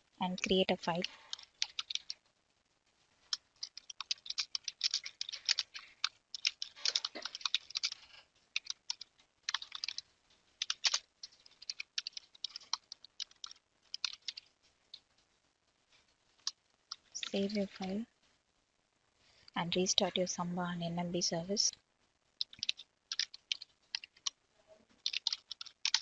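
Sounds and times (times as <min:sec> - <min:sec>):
keyboard typing: 0:00.3 - 0:02.2, 0:03.3 - 0:10.0, 0:10.6 - 0:14.6, 0:22.4 - 0:24.4, 0:25.0 - 0:26.0.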